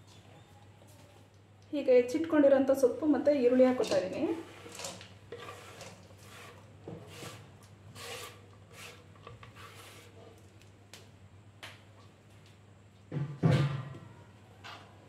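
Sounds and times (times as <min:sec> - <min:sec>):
scraping food off cutting board: 0:03.5 - 0:10.4.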